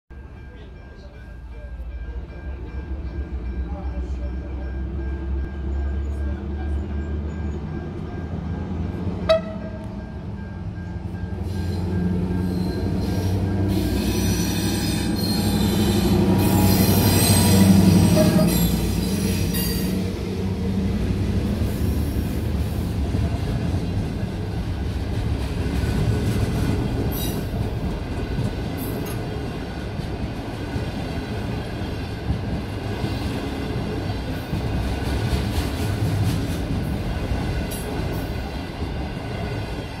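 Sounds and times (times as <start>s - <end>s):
passenger train rumbling past: 0.1s - 40.0s
wheel squeal: 12.4s - 20.0s.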